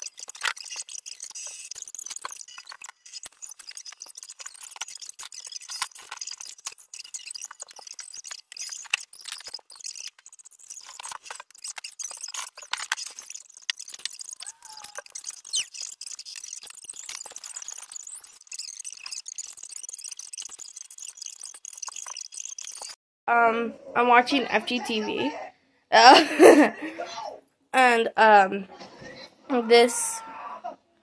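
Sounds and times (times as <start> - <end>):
short squeak: 0.0 - 23.0.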